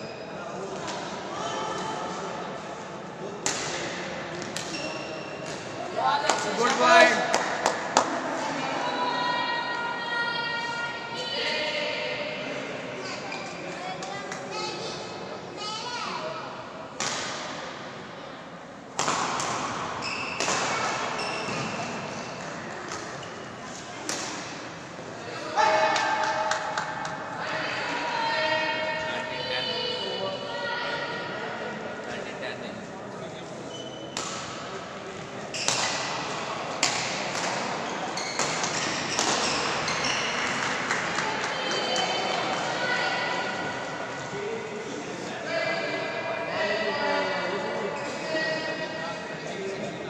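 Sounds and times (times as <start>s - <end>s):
background hubbub: 0.0s - 50.0s
shoes squeaking on court: 4.5s - 5.6s, 20.0s - 22.0s, 33.7s - 34.2s, 37.8s - 40.7s
racket hitting shuttlecock: 35.6s - 37.8s, 38.4s - 41.2s.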